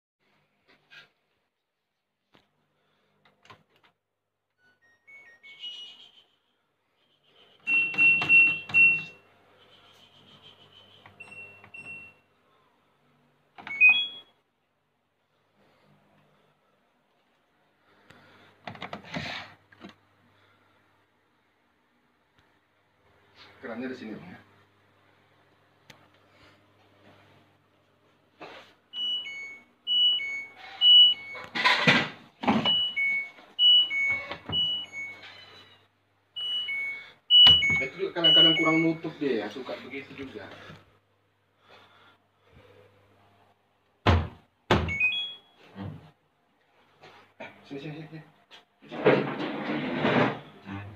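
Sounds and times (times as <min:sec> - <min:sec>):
control panel beeps: 0:07.7 - 0:09.2, 0:13.6 - 0:14.3, 0:29.0 - 0:31.5, 0:32.7 - 0:35.6, 0:36.4 - 0:39.0, 0:44.9 - 0:45.5.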